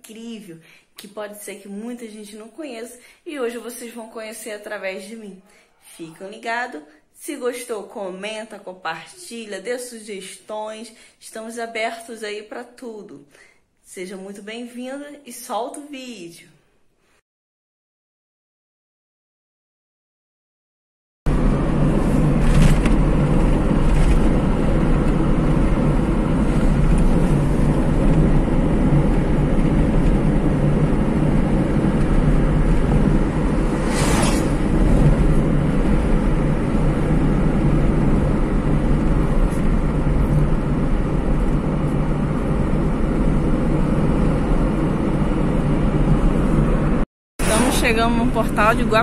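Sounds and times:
car engine and tyre rumble: 21.3s - 47.0s.

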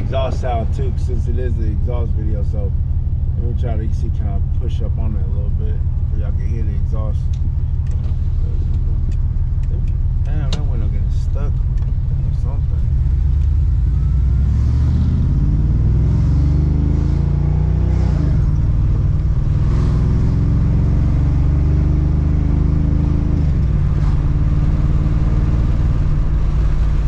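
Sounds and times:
car engine accelerating hard: 0.0s - 27.0s.

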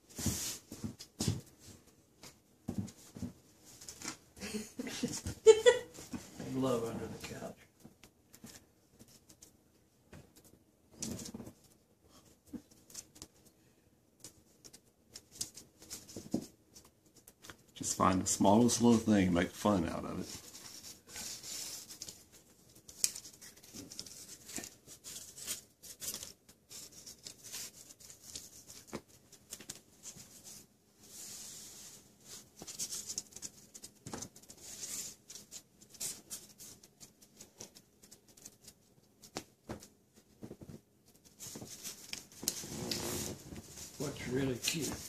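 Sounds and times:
paper rustling and crinkling: 14.2s - 45.0s.

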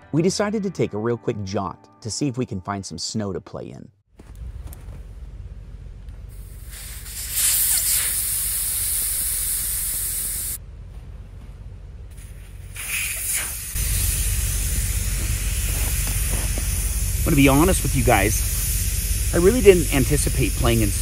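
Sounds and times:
air hissing out of a tire: 6.3s - 10.6s, 12.1s - 21.0s.

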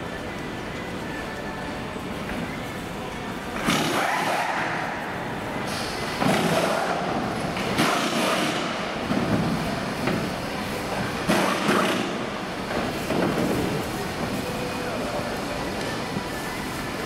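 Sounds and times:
pit-lane noise: 0.0s - 17.0s
pneumatic wheel gun bursts: 7.7s - 8.9s, 11.3s - 12.2s.

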